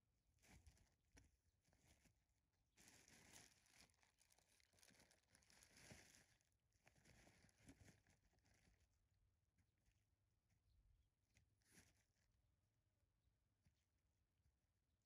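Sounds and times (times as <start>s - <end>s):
faint rustling and crackling: 0.3s - 9.9s, 11.4s - 12.4s.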